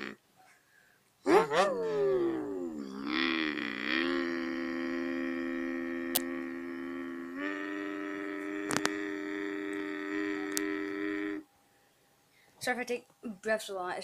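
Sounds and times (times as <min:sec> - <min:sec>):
boy imitating truck engine: 0:00.0 - 0:00.2, 0:01.3 - 0:11.4.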